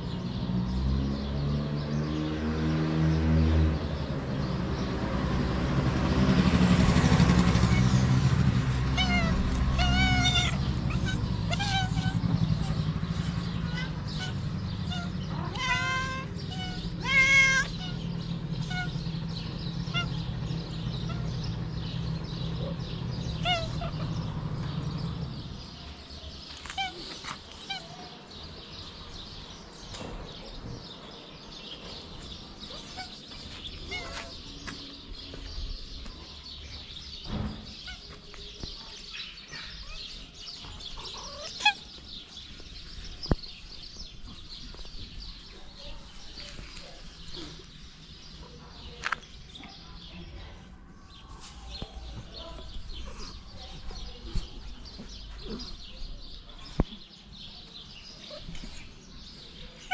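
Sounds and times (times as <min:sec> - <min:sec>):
cat meowing: 0:08.9 - 0:12.8, 0:13.5 - 0:18.1, 0:18.7 - 0:19.0, 0:19.8 - 0:20.2, 0:23.4 - 0:24.1, 0:33.8 - 0:34.3, 0:40.9 - 0:41.9.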